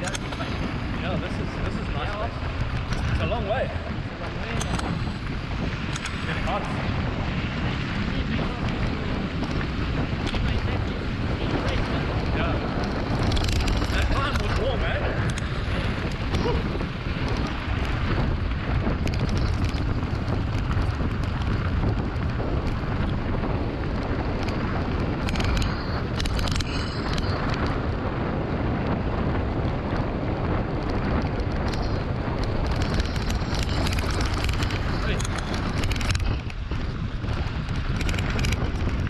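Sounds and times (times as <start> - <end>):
bike tyres rumbling and rattling: 0.0 - 39.0
wind buffeting microphone: 0.0 - 39.0
sharp clicks: 5.9 - 6.3, 15.2 - 16.2, 31.4 - 36.7.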